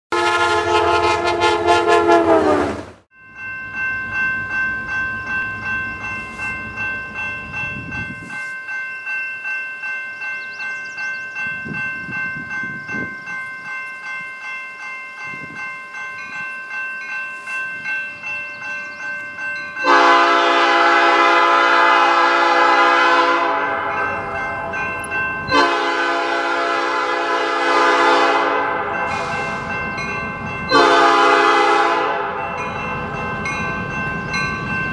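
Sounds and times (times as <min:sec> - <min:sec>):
locomotive horn long blasts: 0:00.1 - 0:02.9, 0:19.8 - 0:29.8, 0:30.7 - 0:32.5
passing train horn: 0:00.1 - 0:03.0, 0:19.8 - 0:29.8, 0:30.7 - 0:32.7
crossing warning bell ringing: 0:03.1 - 0:34.9.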